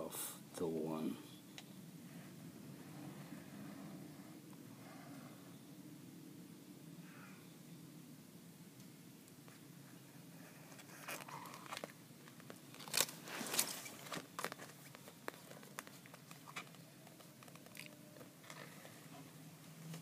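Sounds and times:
plastic blister tray crinkling: 10.7s - 19.0s
plastic cracks: 11.0s - 18.7s.

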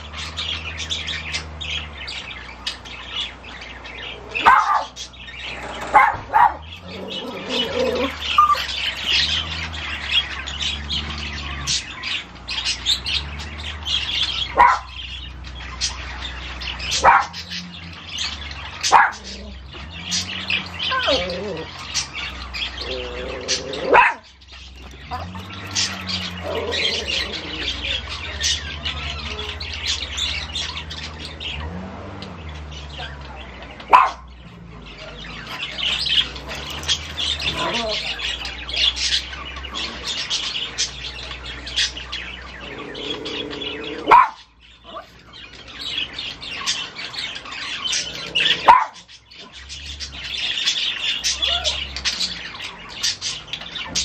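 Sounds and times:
small birds chirping: 0.0s - 54.0s
small dog yapping: 4.4s - 5.0s, 5.9s - 8.8s, 23.6s - 24.2s, 44.0s - 45.1s.

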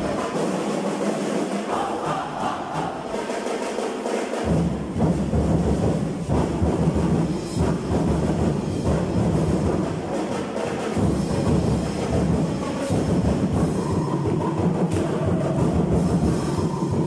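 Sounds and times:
deep heavy drumming: 4.4s - 17.0s.

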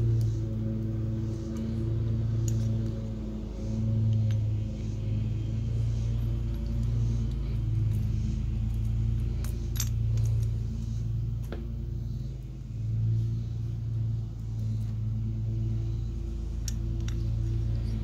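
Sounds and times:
steady low hum: 0.0s - 18.0s
light metallic clinks: 6.0s - 10.6s, 16.5s - 18.0s.

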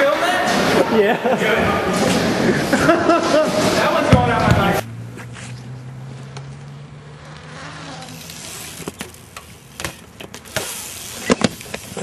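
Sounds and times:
bike knocking on concrete: 4.0s - 4.8s
bike tyre hiss: 7.5s - 12.0s.

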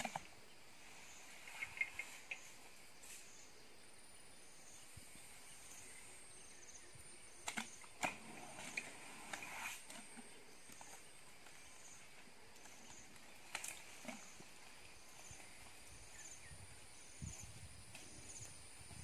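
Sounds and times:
elephant crackling and rustling: 0.0s - 3.4s, 7.4s - 17.2s
faint high insect hum: 0.0s - 19.0s.

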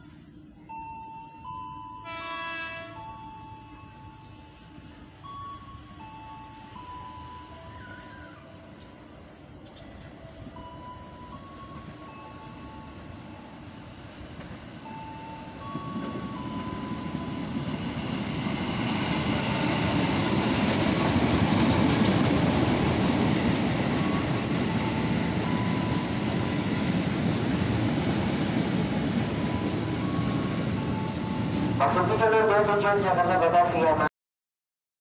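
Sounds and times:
train brake squeal: 14.8s - 21.1s, 23.2s - 28.2s, 29.6s - 34.1s.

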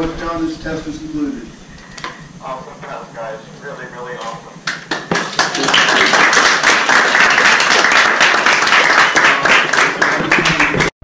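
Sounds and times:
people applauding: 4.6s - 11.0s.

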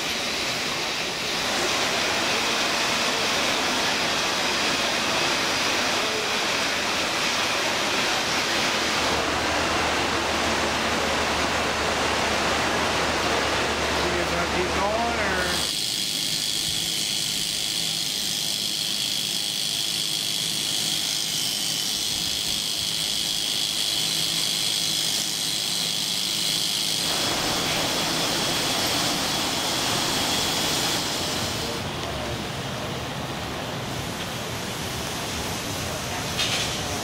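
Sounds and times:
electric clippers whining: 14.5s - 31.7s.

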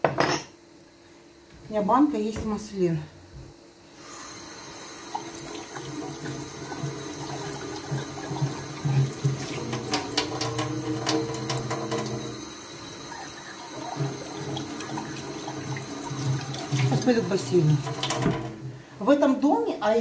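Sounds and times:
mug being rinsed: 5.0s - 18.6s
tap running into metal sink: 5.2s - 12.4s, 13.8s - 18.6s.

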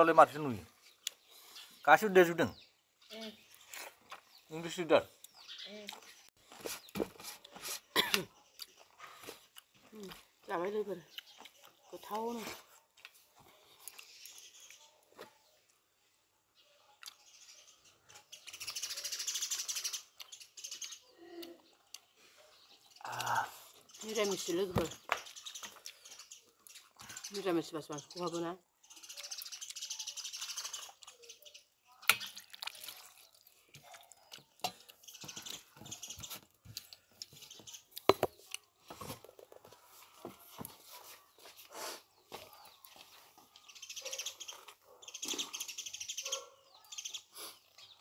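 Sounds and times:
bird chirping: 0.0s - 48.0s
chewing: 5.2s - 10.5s, 11.1s - 12.0s, 12.6s - 15.4s, 17.0s - 17.3s, 32.0s - 38.8s, 39.7s - 45.7s.

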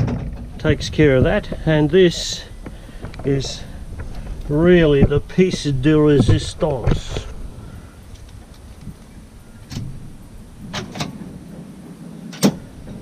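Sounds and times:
latch click: 12.3s - 12.6s.

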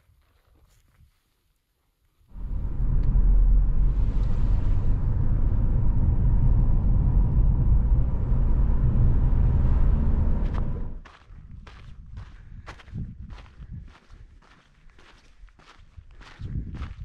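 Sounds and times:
car engine and road rumble: 2.3s - 11.1s.

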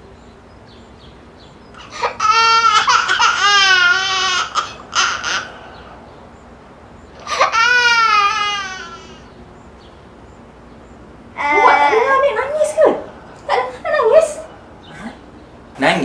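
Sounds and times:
baby crying: 1.8s - 5.9s, 7.2s - 9.3s, 11.4s - 13.1s.

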